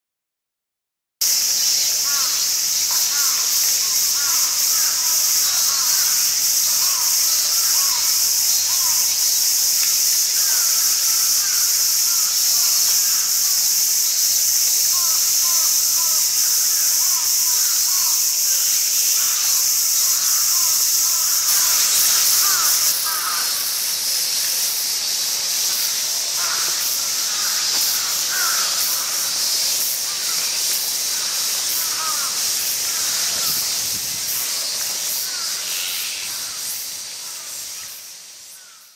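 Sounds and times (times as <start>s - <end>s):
steady high hiss: 1.2s - 38.9s
magpies calling: 2.0s - 13.5s, 14.8s - 23.8s, 25.9s - 33.8s.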